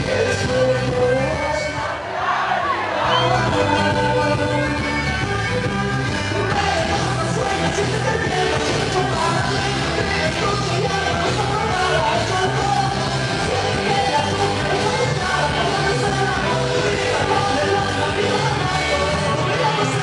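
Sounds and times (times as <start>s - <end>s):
loud music with singing: 0.0s - 20.0s.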